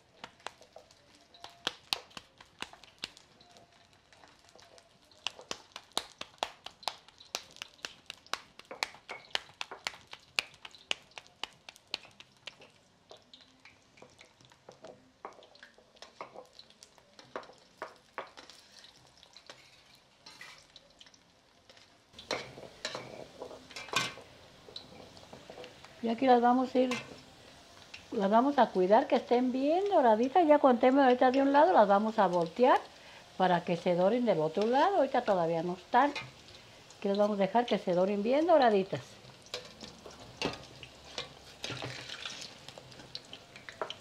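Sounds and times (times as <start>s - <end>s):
frying sizzle: 0.0s - 44.0s
oil crackling and popping: 0.0s - 44.0s
metal spatula scraping a pan: 18.4s - 20.7s, 22.2s - 25.8s, 26.8s - 27.3s, 39.4s - 43.9s.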